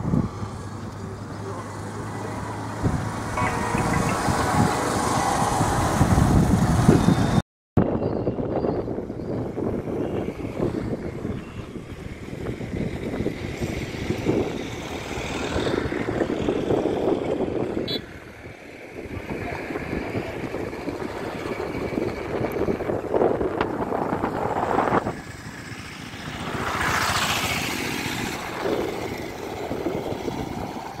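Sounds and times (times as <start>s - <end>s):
vehicles passing: 0.0s - 7.4s, 8.4s - 31.0s.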